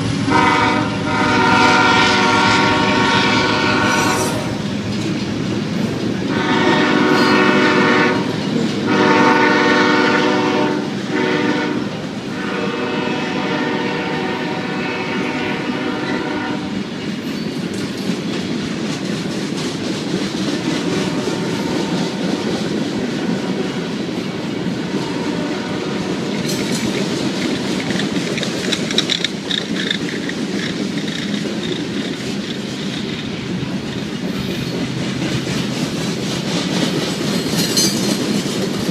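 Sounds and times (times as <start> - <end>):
train wheels clattering over rails: 0.0 - 38.9
train air horn blasts: 0.3 - 4.6, 6.3 - 16.8, 20.8 - 22.5, 24.6 - 26.3.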